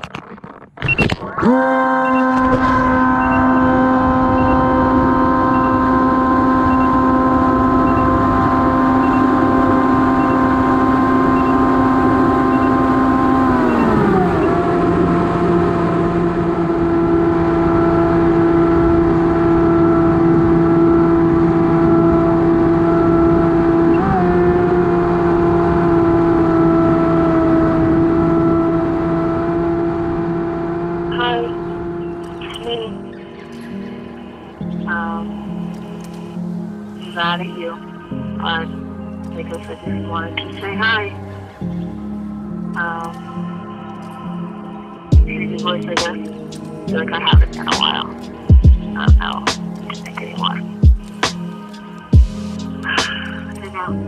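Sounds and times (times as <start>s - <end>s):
electric motor and propeller whine: 1.3s - 54.0s
faint beep: 3.1s - 5.9s, 6.6s - 7.2s, 7.8s - 8.3s, 9.0s - 9.4s, 11.2s - 13.0s.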